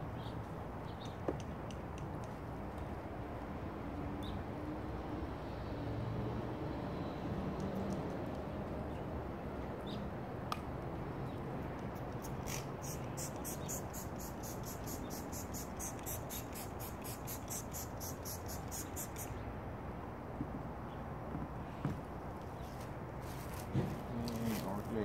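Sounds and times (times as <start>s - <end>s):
spray bottle spritzing: 12.2s - 19.3s.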